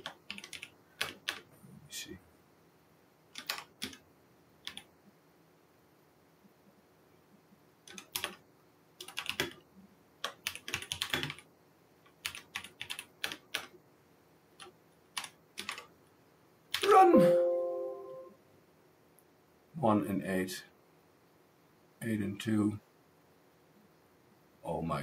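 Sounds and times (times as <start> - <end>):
computer keyboard typing: 0.0 - 1.5, 3.3 - 4.0, 4.6 - 4.9, 7.9 - 8.4, 9.0 - 9.6, 10.2 - 11.4, 12.1 - 13.7, 14.6 - 15.9.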